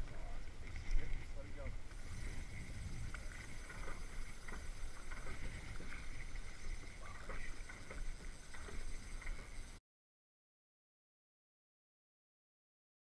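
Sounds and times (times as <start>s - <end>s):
wind rumble on microphone: 0.0s - 9.7s
water running along boat: 0.0s - 9.8s.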